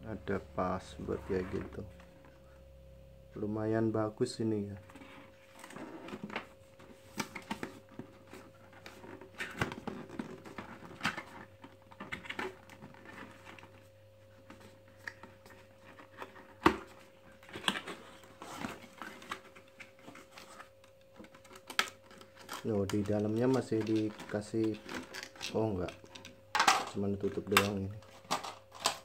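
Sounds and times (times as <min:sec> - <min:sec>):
faint steady hum: 0:00.0 - 0:29.0
cardboard packaging handled: 0:04.8 - 0:26.3.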